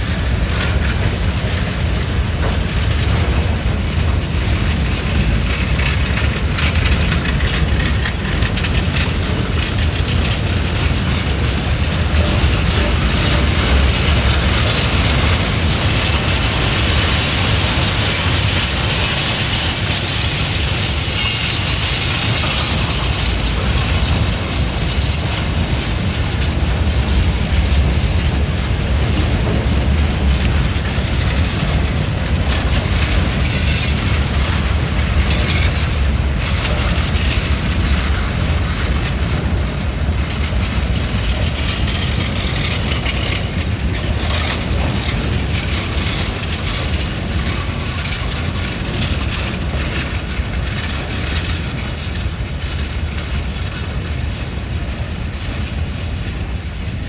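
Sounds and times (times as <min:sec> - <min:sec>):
train wheels rumbling on rails: 0:00.0 - 0:57.0
wheels clattering over rail joints: 0:00.0 - 0:57.0.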